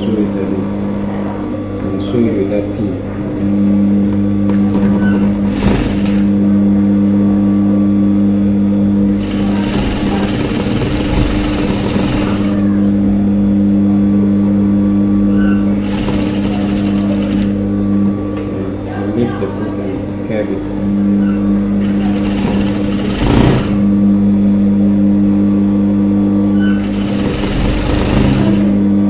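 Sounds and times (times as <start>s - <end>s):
sewing machine stitching: 5.5s - 6.3s, 9.2s - 12.6s, 15.8s - 17.6s, 21.8s - 23.8s, 26.7s - 28.7s.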